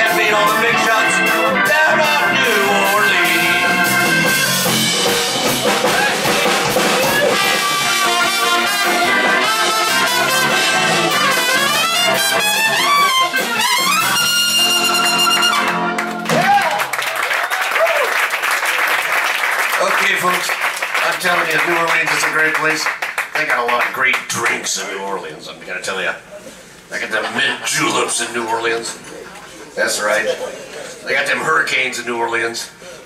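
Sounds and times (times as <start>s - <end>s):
jazz band playing: 0.0s - 16.5s
trumpet solo: 0.0s - 16.5s.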